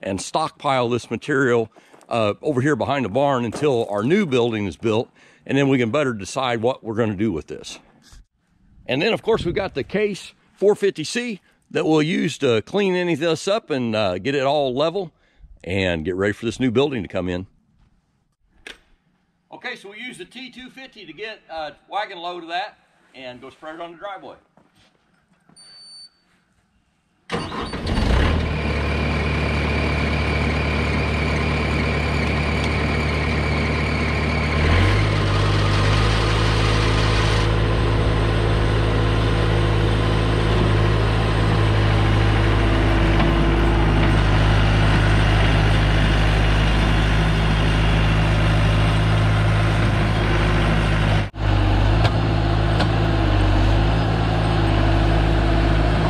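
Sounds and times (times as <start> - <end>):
diesel engine starting and revving: 27.3 - 56.0.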